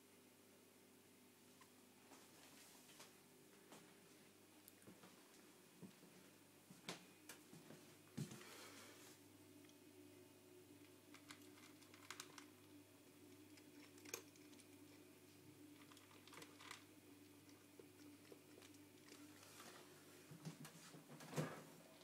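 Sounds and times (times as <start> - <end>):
low steady hum: 0.0 - 22.0
cat chewing dry kibble: 10.8 - 20.0.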